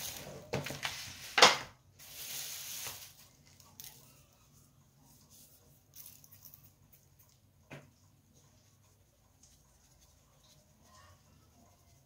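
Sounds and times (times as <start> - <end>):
plastic wrap rustling: 0.0 - 4.1.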